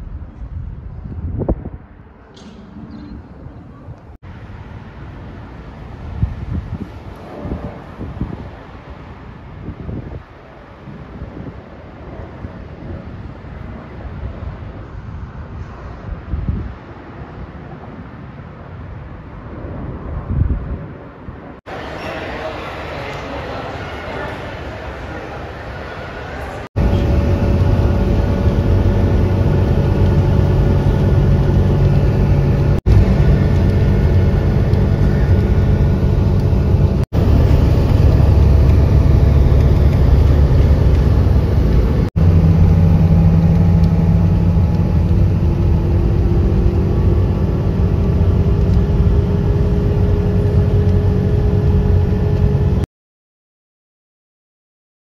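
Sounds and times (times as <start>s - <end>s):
jet airliner passing overhead: 11.1s - 52.8s.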